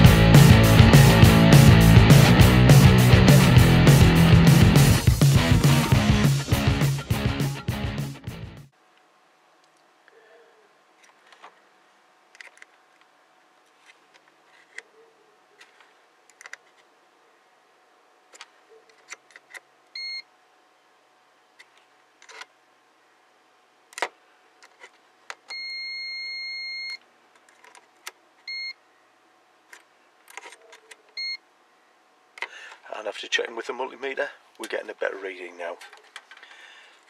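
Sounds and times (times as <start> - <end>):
multimeter beeps: 20.0 - 20.3, 25.5 - 27.0, 28.5 - 28.8, 31.2 - 31.4.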